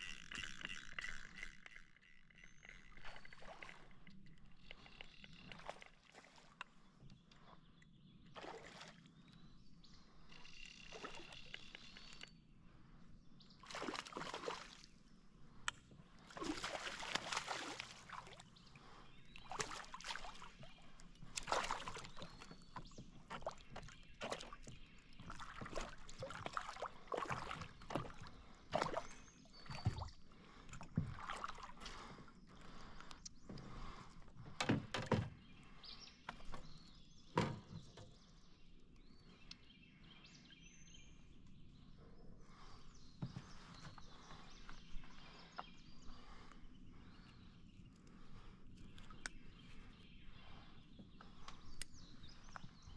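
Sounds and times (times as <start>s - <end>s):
fish thrashing and splashing water: 13.7s - 14.9s, 16.3s - 18.4s, 19.5s - 20.6s, 21.3s - 22.5s, 25.3s - 29.1s.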